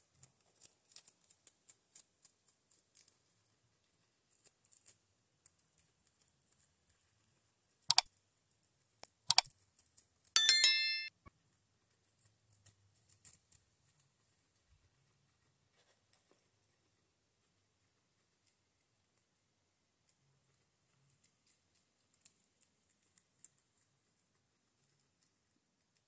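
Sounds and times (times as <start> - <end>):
guinea pig chewing food: 0.0 - 10.4, 11.3 - 26.0
loud bell ding: 10.4 - 11.1.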